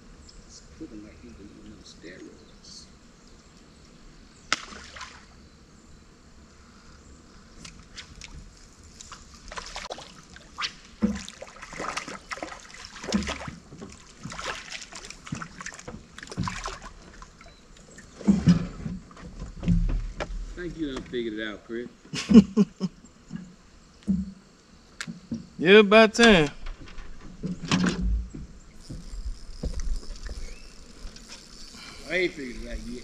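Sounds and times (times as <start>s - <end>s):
fish splashing in water: 4.5s - 5.3s, 9.1s - 18.3s.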